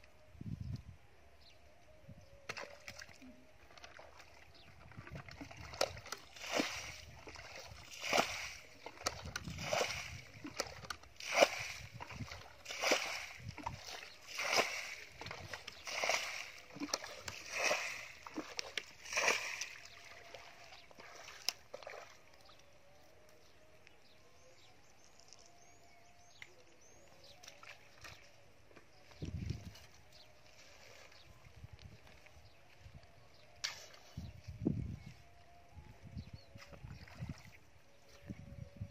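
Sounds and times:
water splashing from bucket: 3.8s - 22.1s.

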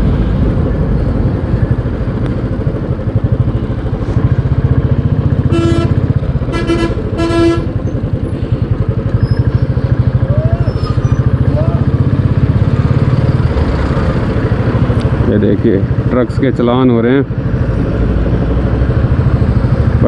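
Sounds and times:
motorcycle engine pulsing: 0.0s - 20.0s
vehicle horn honking: 5.5s - 7.8s.

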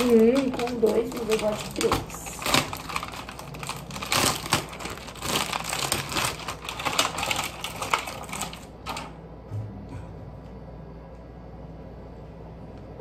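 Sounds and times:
packaging crinkling and clicking: 0.0s - 9.1s.

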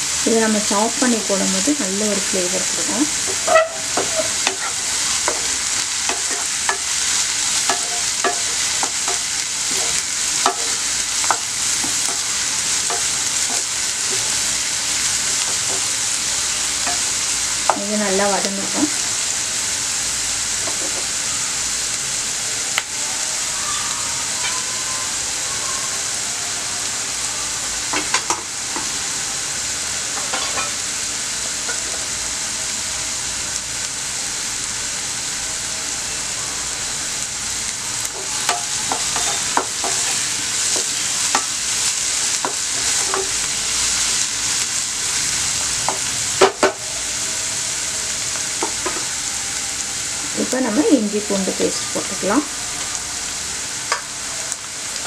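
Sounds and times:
vegetables sizzling in hot oil: 0.0s - 55.0s
wooden spatula scraping pan: 3.2s - 6.9s.

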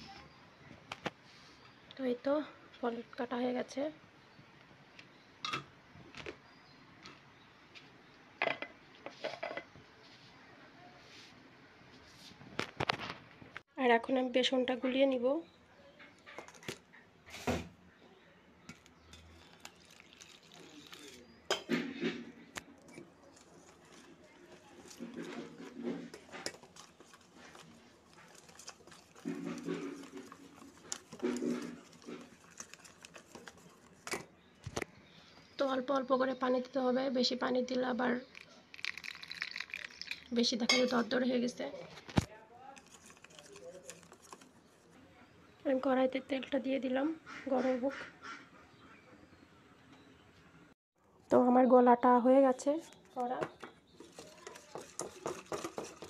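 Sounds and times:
whisk scraping a steel bowl: 22.9s - 33.8s, 54.0s - 56.0s
plastic plates knocking and clattering: 29.2s - 32.3s, 53.4s - 56.0s.

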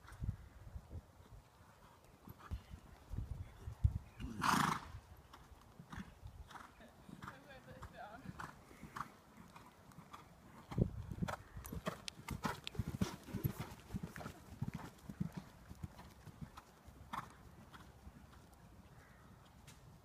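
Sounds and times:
hoofbeats on sand: 5.9s - 19.2s.

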